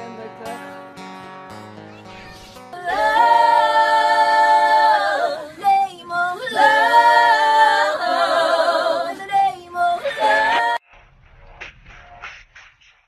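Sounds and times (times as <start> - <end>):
women singing a cappella: 2.7 - 10.8.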